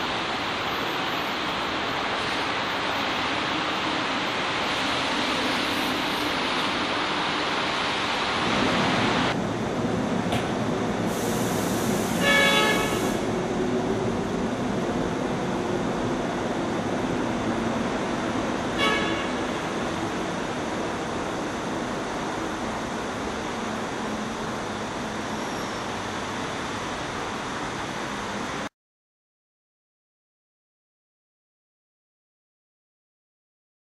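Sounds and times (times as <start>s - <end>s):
subway train running rumble: 0.0s - 28.7s
steady hiss: 11.0s - 13.3s
train horn: 12.2s - 13.2s, 18.7s - 19.5s.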